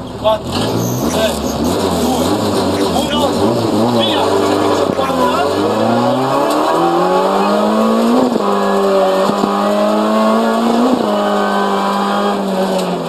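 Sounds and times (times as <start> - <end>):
rally car engine at high revs: 0.0 - 13.0.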